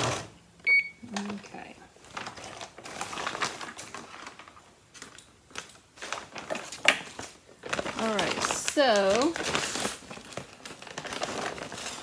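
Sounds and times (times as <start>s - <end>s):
feed sack rustling: 6.1s - 12.0s.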